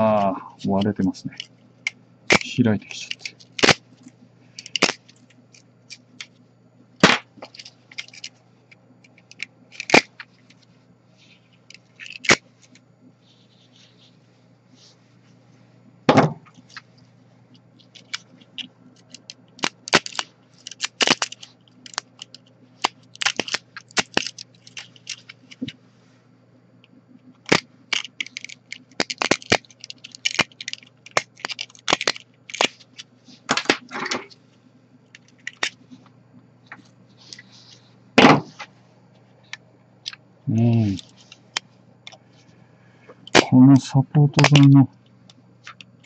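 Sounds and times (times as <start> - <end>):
plastic snapping and cracking: 1.4 - 6.3, 7.0 - 8.3, 9.0 - 10.3, 11.7 - 12.8, 17.8 - 25.8, 27.4 - 34.4, 35.1 - 35.8.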